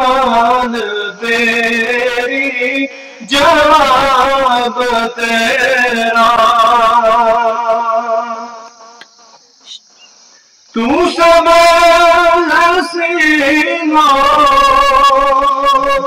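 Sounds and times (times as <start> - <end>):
man singing solo: 10.8 - 16.0.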